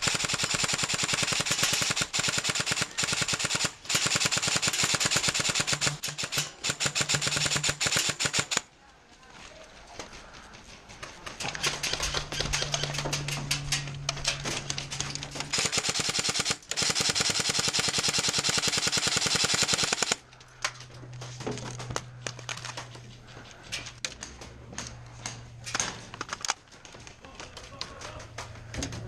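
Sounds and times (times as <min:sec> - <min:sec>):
airsoft rifles firing: 0:00.0 - 0:08.7, 0:15.5 - 0:20.2.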